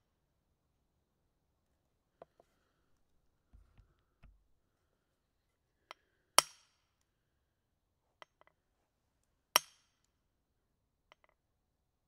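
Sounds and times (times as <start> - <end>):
faint tap: 3.5 - 4.4.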